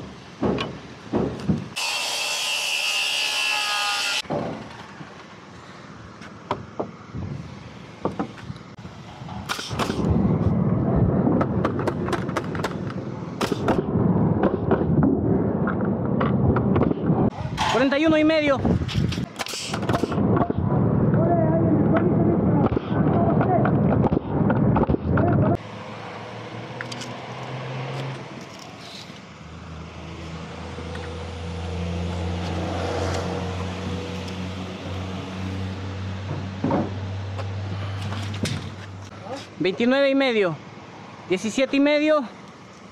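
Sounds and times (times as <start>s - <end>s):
nailer firing nails: 9.4s - 10.1s, 11.4s - 13.9s, 19.3s - 20.2s
steady low rumble: 10.0s - 12.2s.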